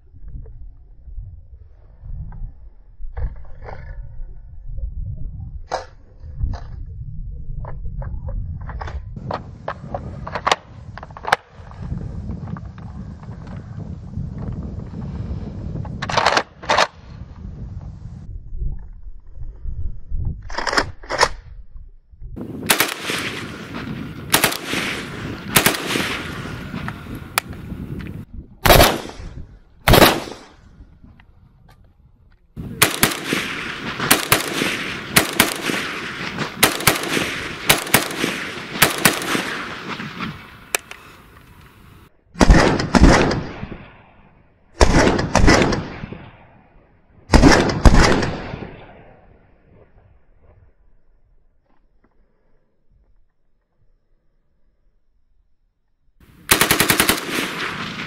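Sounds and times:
rifle gunshots with echo: 22.6 - 27.4, 28.6 - 30.6, 32.6 - 40.5, 42.4 - 44.0, 44.8 - 46.5, 47.3 - 49.2, 56.5 - 58.0.

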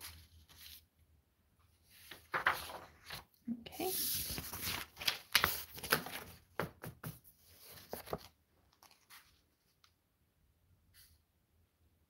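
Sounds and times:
paper sheets rustling: 0.0 - 0.9, 1.9 - 9.8.

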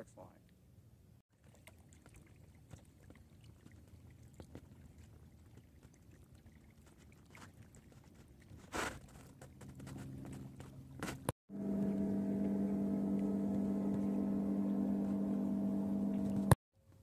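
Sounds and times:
low steady hum: 9.6 - 16.6
low rumble: 11.5 - 16.6.

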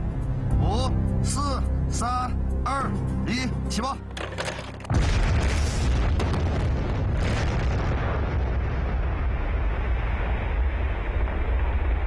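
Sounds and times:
deep rumble: 4.9 - 12.0
rock blast explosion: 4.9 - 12.0.

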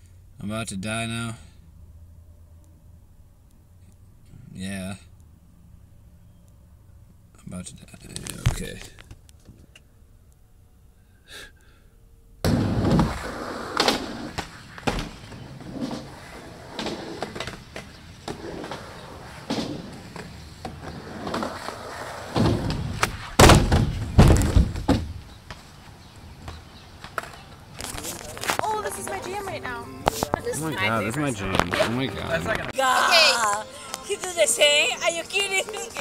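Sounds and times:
skateboard wheels rolling on concrete: 12.4 - 36.0
skateboard clacks and thuds: 12.5 - 25.6.

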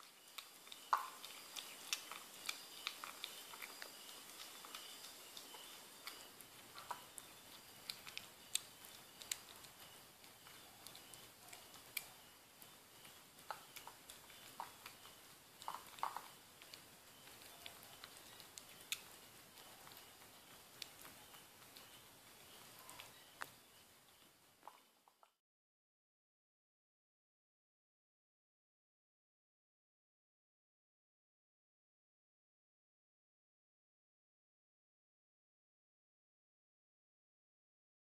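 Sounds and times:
kitten chewing and licking: 0.0 - 25.4.

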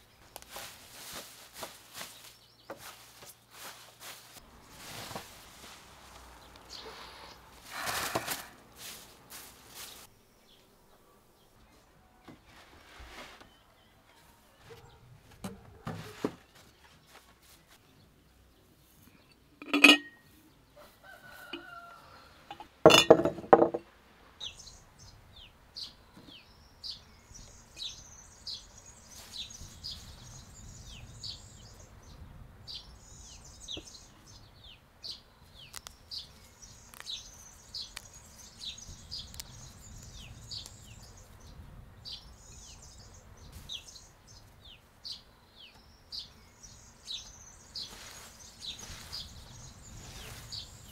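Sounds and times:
songbirds chirping: 0.0 - 50.9
rooster crowing: 20.8 - 22.5.

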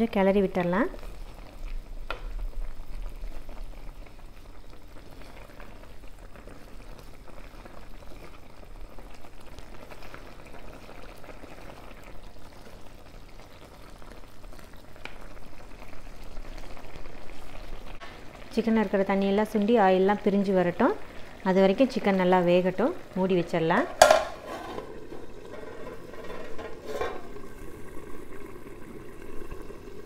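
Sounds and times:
gravy bubbling and sizzling: 0.0 - 30.0
spatula knocking on pot: 23.8 - 24.9
wooden spatula stirring: 23.8 - 27.4.

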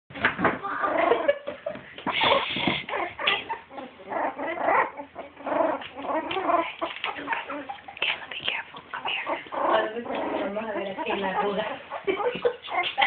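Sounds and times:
puppies whimpering and squealing: 2.0 - 8.2, 9.0 - 13.0.

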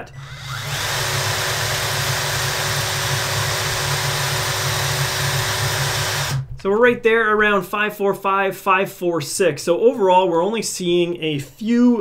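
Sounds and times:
cordless drill whine: 0.0 - 6.4.

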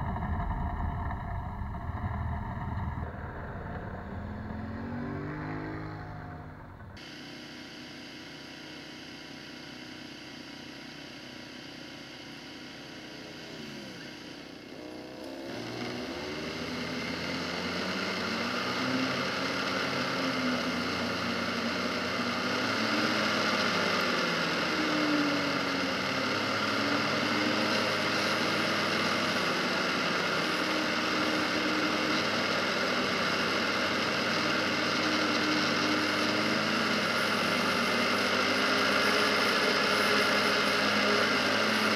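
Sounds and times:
wind and tyre rush: 0.0 - 6.7
atv engine: 0.0 - 41.9.

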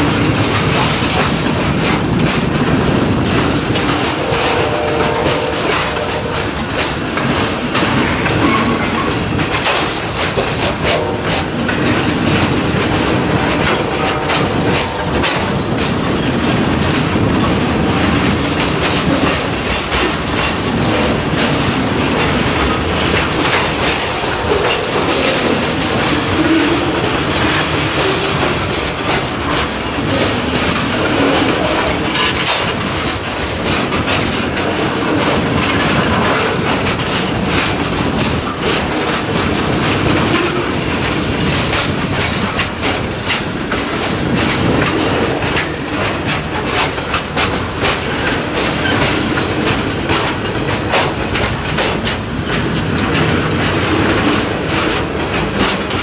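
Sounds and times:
train wheels rumbling on rails: 0.0 - 56.0
wheels clicking over rail joints: 0.0 - 56.0.

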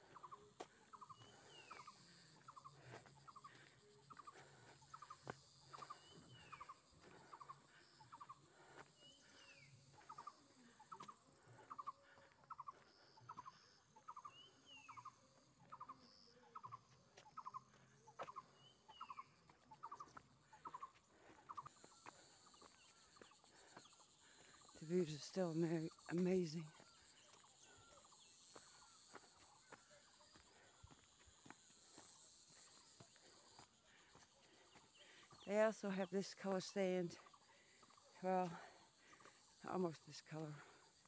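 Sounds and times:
faint birdsong: 0.0 - 41.0
high hiss of insects: 21.5 - 41.0.

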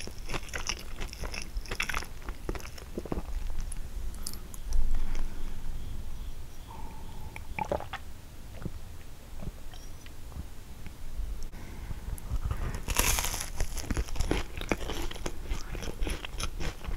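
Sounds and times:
person chewing pastry: 0.0 - 5.5, 12.2 - 16.9.

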